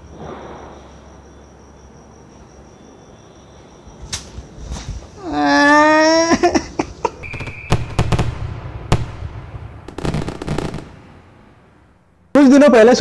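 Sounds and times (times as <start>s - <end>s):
firework bangs: 0.1s - 0.9s, 7.2s - 11.8s
firework crackling: 7.2s - 11.7s.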